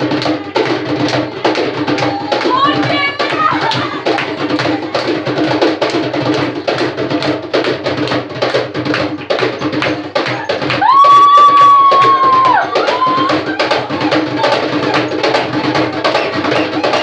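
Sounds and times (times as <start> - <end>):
hand drums fast rhythm: 0.0 - 17.0.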